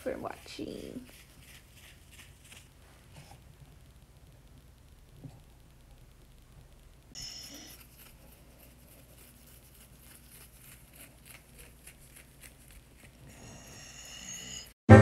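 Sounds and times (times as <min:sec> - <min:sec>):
hand rubbing dog fur: 0:00.0 - 0:03.4, 0:07.2 - 0:13.3.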